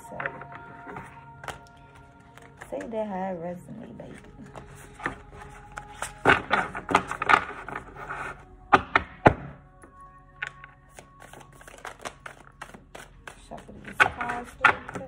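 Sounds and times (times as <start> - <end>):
cards shuffled by hand: 10.9 - 15.0.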